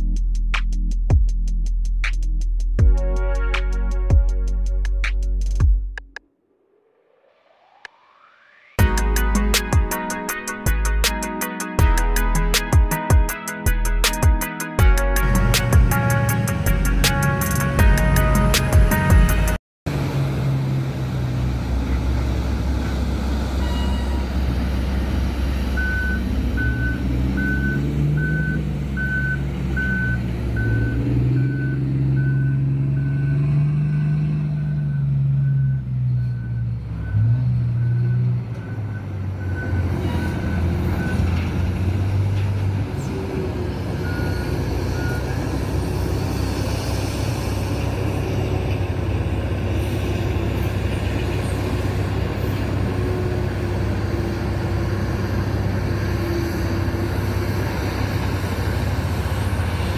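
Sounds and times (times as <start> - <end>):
large diesel engine revving: 15.0 - 59.9
truck back-up alarm beeping: 23.6 - 24.6, 25.7 - 42.3, 43.0 - 46.4.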